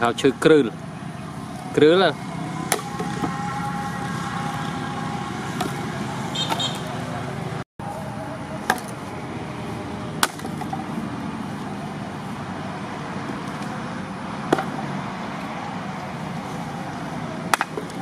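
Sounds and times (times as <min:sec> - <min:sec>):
steady background hum: 0:00.0 - 0:18.0
axe striking logs: 0:02.7 - 0:03.4, 0:05.6 - 0:06.9, 0:08.6 - 0:09.1, 0:10.2 - 0:10.9, 0:14.4 - 0:14.9, 0:17.5 - 0:18.0.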